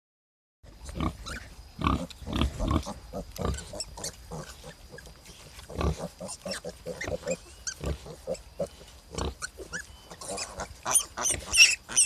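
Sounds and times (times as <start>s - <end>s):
pig grunting: 5.7s - 12.0s.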